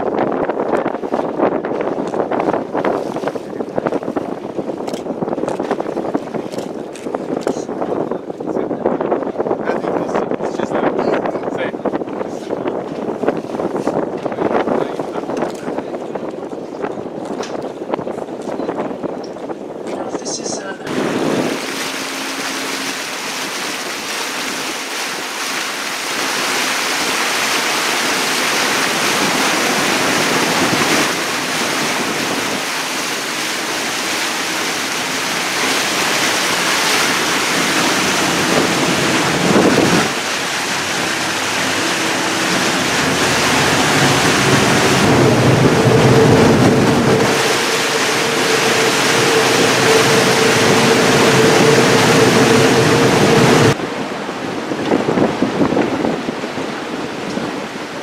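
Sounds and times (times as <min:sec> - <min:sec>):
water swishing past hull: 0:00.0 - 0:58.0
wind rushing over microphone: 0:00.0 - 0:58.0
diesel engine drone: 0:33.6 - 0:53.8.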